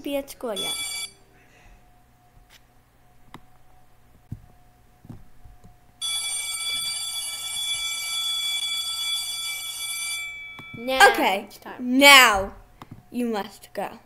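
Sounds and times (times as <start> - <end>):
school bell ringing: 0.6 - 1.1, 6.0 - 11.3.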